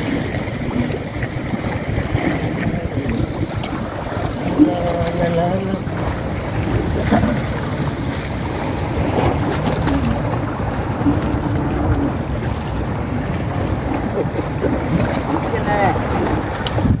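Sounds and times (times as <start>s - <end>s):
sea waves washing ashore: 0.0s - 17.0s
wind buffeting microphone: 0.0s - 17.0s.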